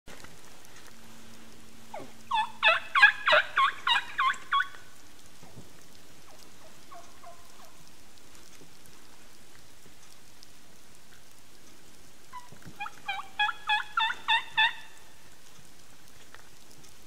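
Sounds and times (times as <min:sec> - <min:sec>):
wild turkey calling: 0:01.9 - 0:05.0, 0:06.2 - 0:07.9, 0:12.3 - 0:15.2.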